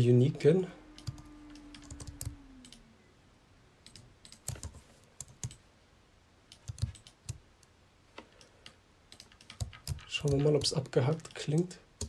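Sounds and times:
computer keyboard and mouse clicks: 3.8 - 5.6, 6.5 - 11.7.

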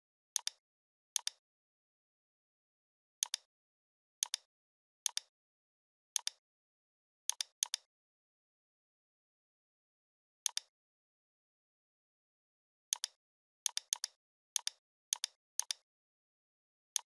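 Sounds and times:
computer mouse clicks: 0.4 - 0.6, 1.2 - 1.4, 3.2 - 3.5, 4.2 - 4.5, 5.1 - 5.3, 6.2 - 6.4, 7.3 - 7.9, 10.5 - 10.7, 12.9 - 15.8.

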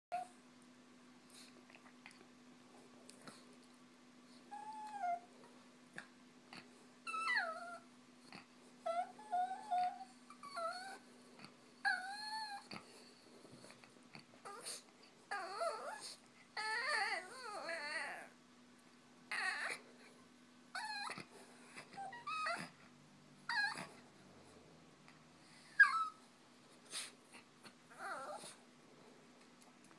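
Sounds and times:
small dog whining: 0.1 - 0.4, 4.3 - 5.3, 6.5 - 13.0, 13.6 - 18.4, 19.3 - 19.8, 20.7 - 22.8, 23.4 - 24.0, 25.6 - 26.3, 26.9 - 28.6.

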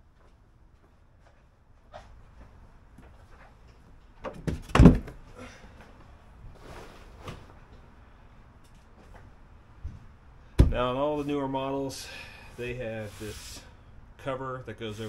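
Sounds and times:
scuffing and handling noises: 0.2 - 4.5, 5.8 - 8.0
heavy thump: 4.4 - 5.2, 10.6 - 11.0.

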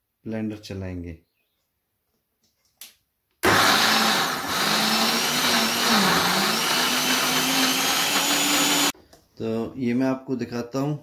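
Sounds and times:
blender motor running: 3.4 - 9.0.

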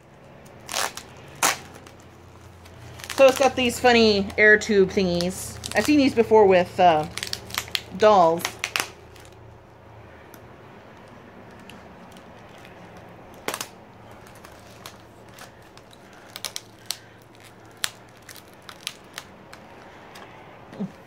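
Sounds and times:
scissors snipping tape and plastic: 0.4 - 2.0, 2.6 - 4.0, 6.9 - 9.4.

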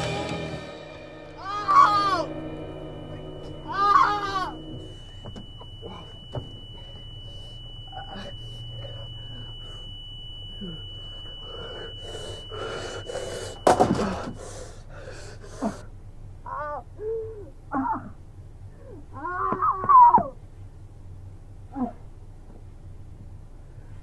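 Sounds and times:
high-pitched ringing tone: 0.0 - 18.1
man panting heavily: 11.4 - 15.9.

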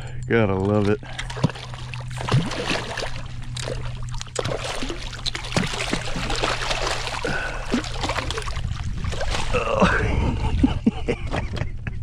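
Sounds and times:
fish splashing at the surface: 1.0 - 9.9.

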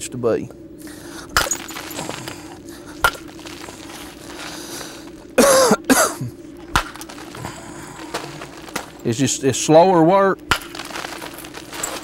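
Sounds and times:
person coughing: 5.4 - 6.4.

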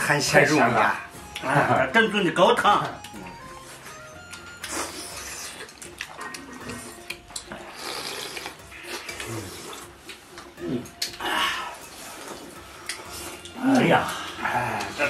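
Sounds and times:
chopsticks clicking on bowls: 4.3 - 11.3, 12.2 - 14.0
people slurping soup: 4.6 - 15.0.

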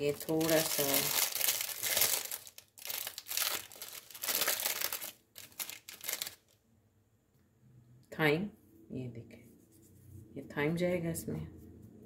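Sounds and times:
packaging crinkling: 0.0 - 6.6.

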